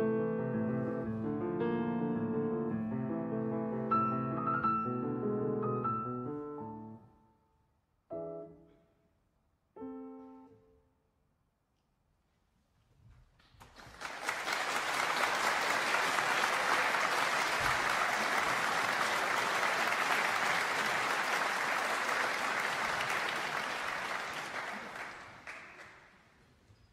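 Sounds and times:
audience applauding: 13.5s - 26.4s.

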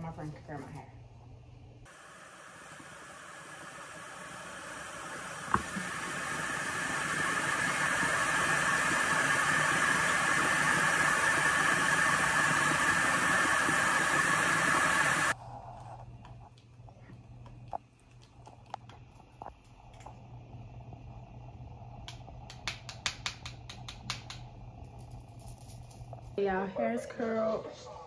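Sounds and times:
tap running into a sink: 5.5s - 5.9s.

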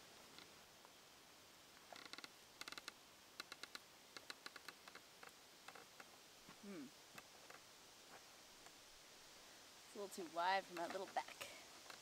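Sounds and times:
wooden chair creaking: 1.9s - 7.6s.

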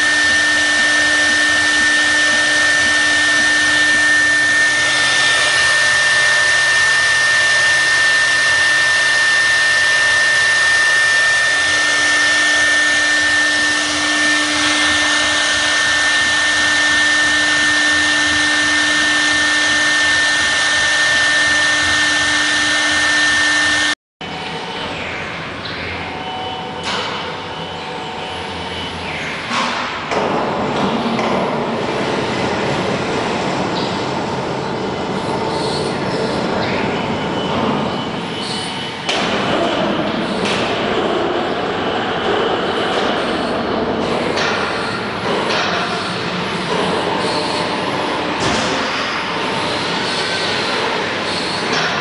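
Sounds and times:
wood router cutting: 0.0s - 24.0s.

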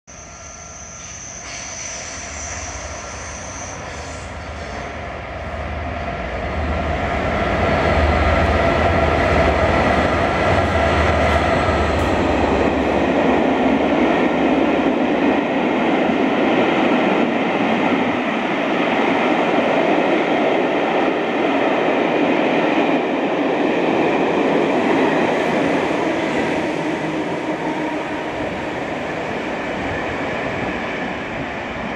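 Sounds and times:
train wheels rumbling on rails: 0.4s - 31.9s.

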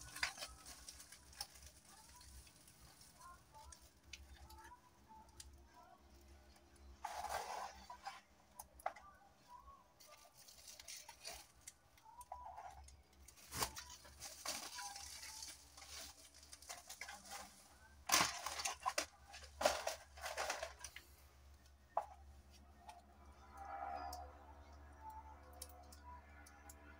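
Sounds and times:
packaging crinkling and rustling: 0.0s - 4.8s, 10.0s - 11.8s, 13.2s - 21.1s.

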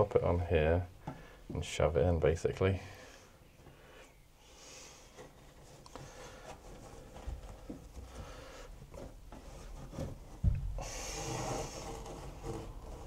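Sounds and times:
wool insulation rubbing and rustling: 5.1s - 13.0s
dull thump: 10.0s - 10.8s.

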